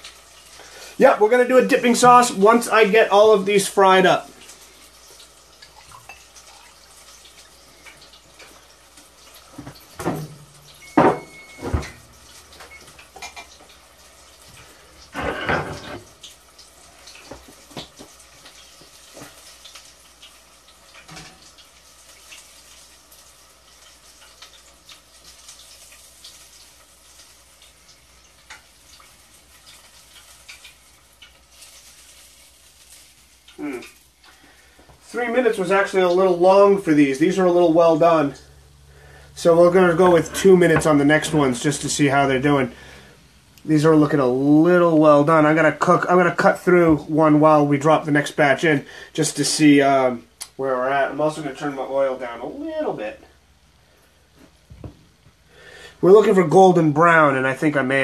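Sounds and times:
faint steady hiss: 0.0s - 58.0s
pans and utensils clattering: 9.3s - 13.8s, 15.0s - 16.2s.

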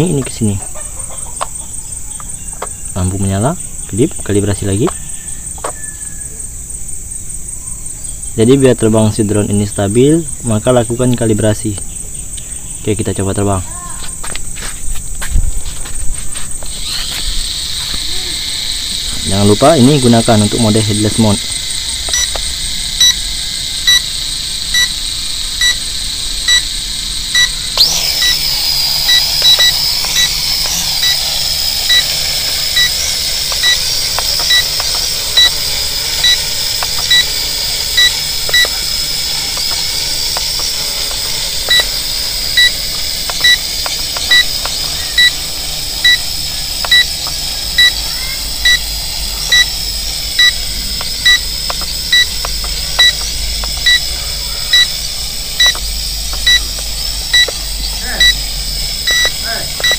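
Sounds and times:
quadcopter propeller whine: 16.5s - 59.9s
electronic beeping: 18.9s - 23.2s, 23.8s - 25.0s, 25.6s - 26.7s, 27.3s - 59.9s.

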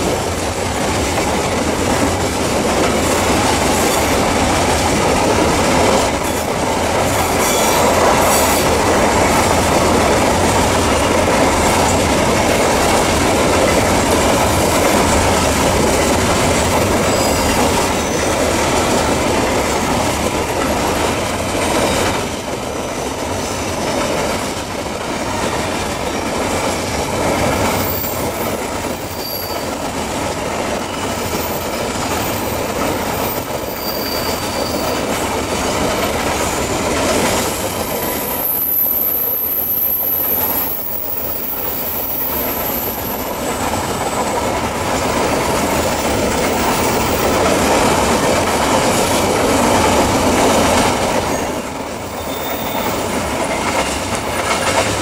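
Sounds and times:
train wheels rumbling and clattering: 0.0s - 55.0s
high wheel squeals: 17.0s - 18.4s, 29.1s - 29.8s, 33.2s - 35.0s, 52.1s - 53.0s.

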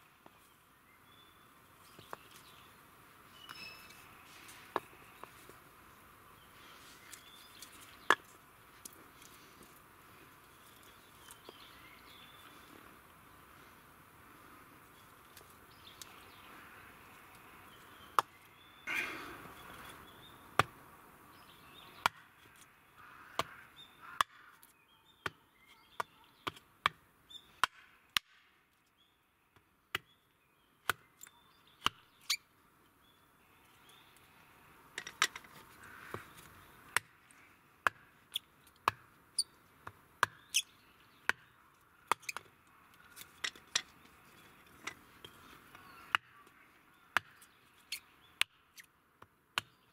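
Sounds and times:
knife chopping wood: 26.0s - 27.0s, 30.8s - 31.0s, 37.8s - 38.1s, 38.8s - 39.1s, 39.8s - 40.5s, 41.2s - 41.5s, 47.2s - 47.4s, 49.2s - 49.8s.

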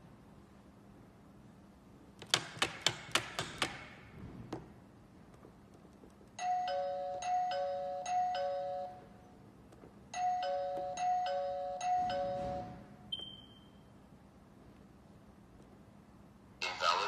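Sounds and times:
electronic ding-dong doorbell chime: 6.4s - 9.1s, 10.2s - 13.6s.

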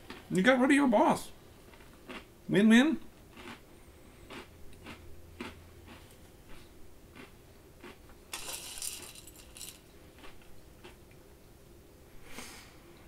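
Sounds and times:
cereal crunching: 1.7s - 2.3s, 3.3s - 3.6s, 4.3s - 11.0s.

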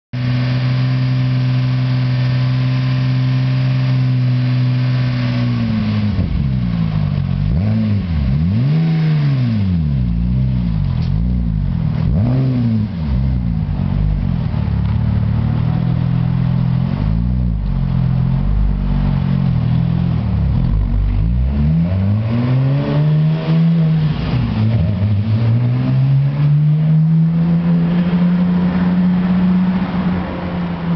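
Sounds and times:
car engine idling: 0.2s - 8.7s, 9.6s - 12.2s, 12.8s - 21.5s
car driving off: 0.2s - 30.9s.

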